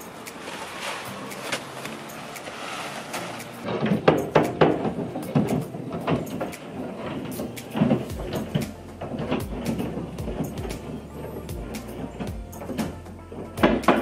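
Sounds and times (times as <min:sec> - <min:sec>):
knocks and thuds of roofing work: 0:03.2 - 0:14.0.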